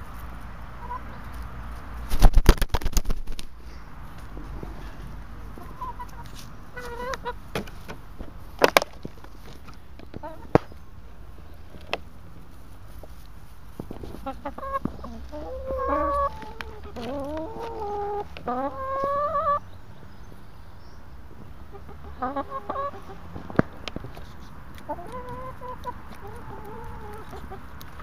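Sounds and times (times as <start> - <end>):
hens clucking and calling: 0.8 - 1.4, 4.6 - 10.8, 13.0 - 19.7, 21.3 - 28.0.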